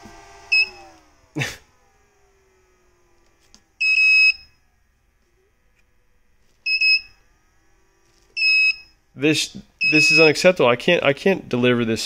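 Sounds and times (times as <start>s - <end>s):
short high electronic beeps: 9.8s - 10.4s.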